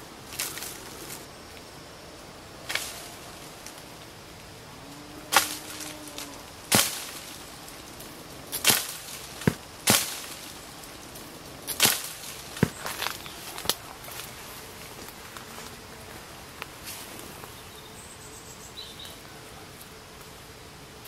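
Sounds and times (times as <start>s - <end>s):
wooden pole striking branches: 5.3s - 7.8s, 8.5s - 11.0s, 11.7s - 14.3s.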